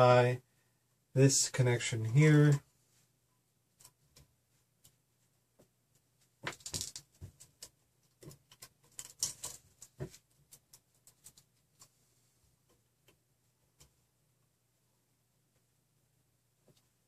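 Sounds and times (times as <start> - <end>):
wires rustling: 2.2 - 14.3.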